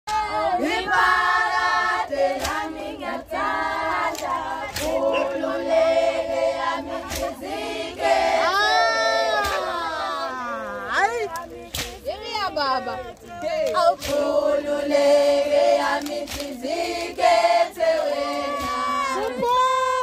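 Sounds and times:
women singing in unison: 0:00.1 - 0:10.2, 0:11.4 - 0:20.0
hands clapping: 0:02.3 - 0:02.8, 0:04.0 - 0:05.4, 0:07.0 - 0:07.4, 0:11.2 - 0:12.0, 0:13.3 - 0:14.4, 0:15.8 - 0:17.3.

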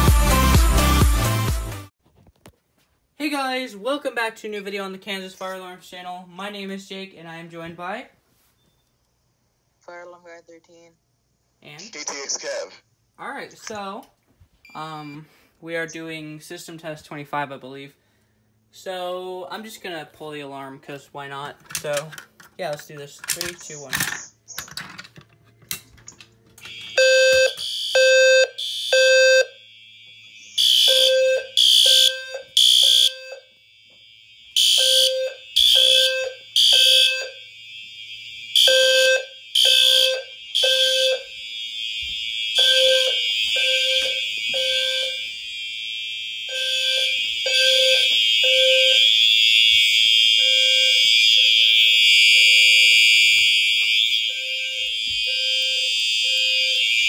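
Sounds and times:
continuous high horn tone: 0:26.6 - 0:45.5, 0:50.3 - 0:57.0
fire alarm horns beeping: 0:26.6 - 0:57.0.

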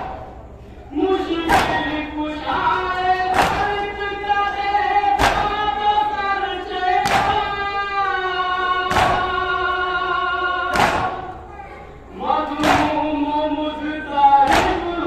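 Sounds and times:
voices chanting: 0:00.0 - 0:15.0
hands beating chests: 0:03.3 - 0:03.9, 0:05.2 - 0:05.6, 0:07.0 - 0:07.6, 0:08.9 - 0:09.4, 0:10.7 - 0:11.4, 0:12.6 - 0:13.0, 0:14.5 - 0:15.0.

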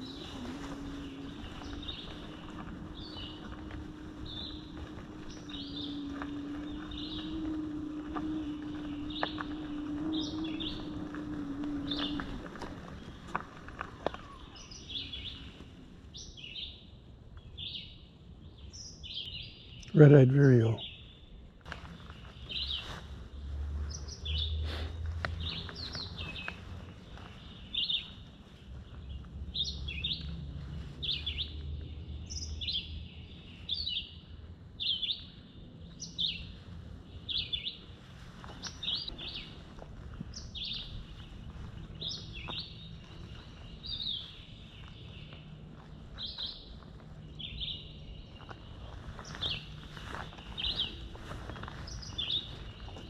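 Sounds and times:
bird singing short phrases: 0:18.8 - 0:21.3.

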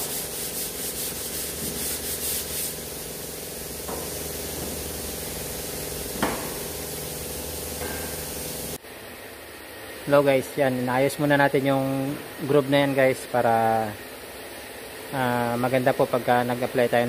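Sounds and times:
sandpaper rubbing on metal: 0:00.0 - 0:03.6
shop hum: 0:00.0 - 0:17.0
single knock: 0:06.2 - 0:06.6.

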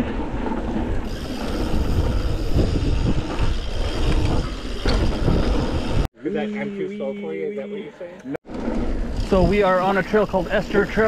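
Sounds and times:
bike rattling on rough ground: 0:00.0 - 0:06.1
wind buffeting microphone: 0:00.0 - 0:06.1.

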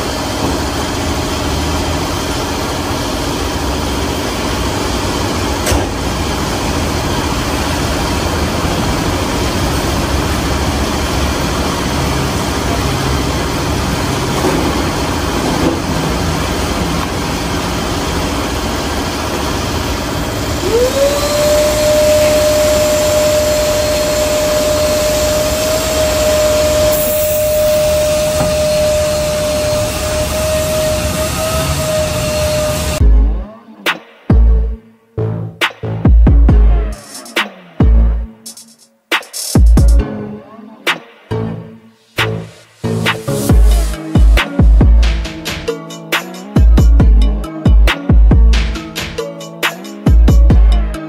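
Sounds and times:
motor spinning up whine: 0:00.0 - 0:33.3
machinery running: 0:00.0 - 0:33.5, 0:41.5 - 0:51.0.

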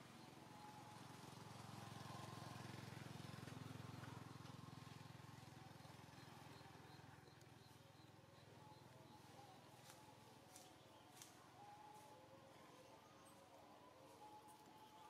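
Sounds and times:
distant vehicle passing: 0:00.0 - 0:08.5.

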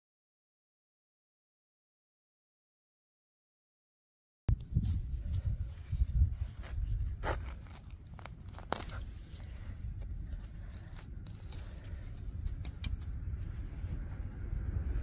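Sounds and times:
low steady rumble: 0:04.5 - 0:15.0
hands digging in soil: 0:04.6 - 0:14.2
sharp crackles: 0:06.6 - 0:09.6.

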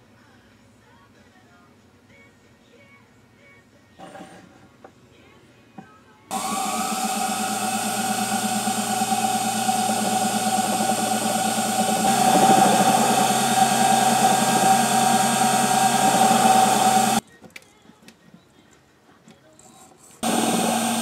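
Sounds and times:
mini lathe motor hum: 0:06.3 - 0:17.2, 0:20.2 - 0:21.0.

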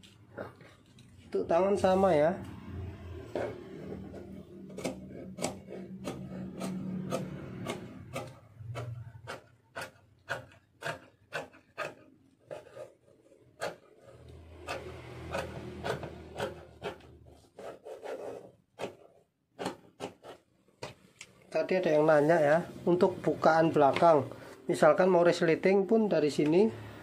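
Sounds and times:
scissors snipping fabric: 0:04.2 - 0:13.0, 0:13.6 - 0:17.1.

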